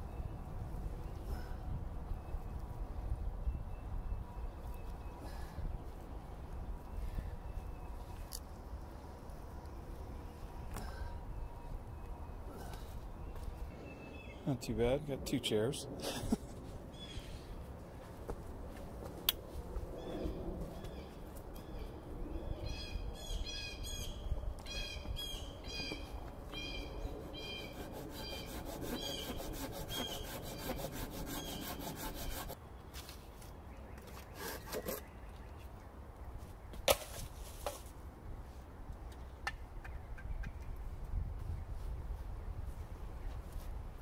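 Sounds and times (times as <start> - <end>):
hand saw cutting wood: 27.2 - 32.6, 34.3 - 35.1.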